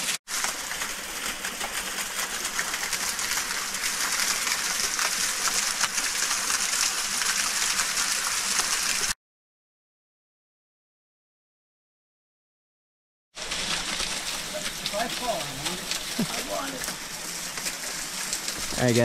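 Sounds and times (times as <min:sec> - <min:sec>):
small waterfall splashing on stones: 0:00.0 - 0:09.2, 0:13.4 - 0:19.0.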